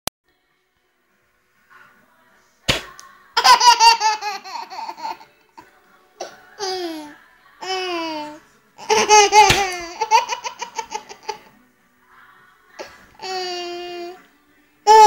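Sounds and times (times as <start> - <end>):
baby laughing: 3.4 - 5.6, 6.2 - 11.5.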